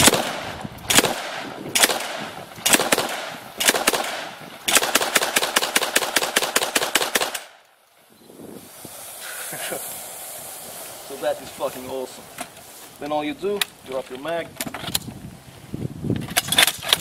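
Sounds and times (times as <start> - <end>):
shotgun automatic burst: 0.0 - 7.6
shotgun single shots: 0.0 - 7.6.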